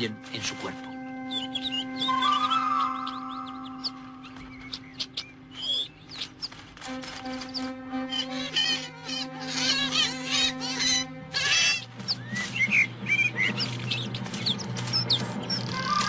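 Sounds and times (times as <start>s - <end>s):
music drone: 0.0s - 16.0s
polecat squealing: 8.1s - 11.8s.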